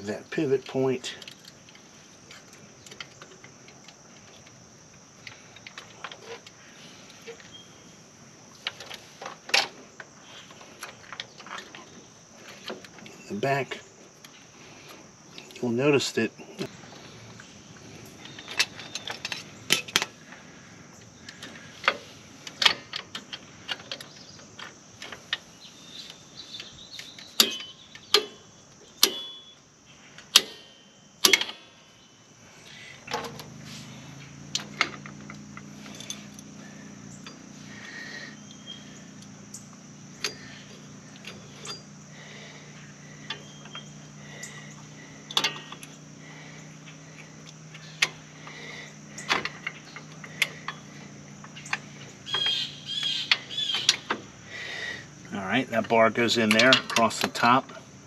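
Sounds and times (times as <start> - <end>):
low steady hum: 0.0 - 58.0
metal brake parts clinking: 18.1 - 20.2, 26.5 - 31.7, 33.0 - 54.3, 55.8 - 57.6.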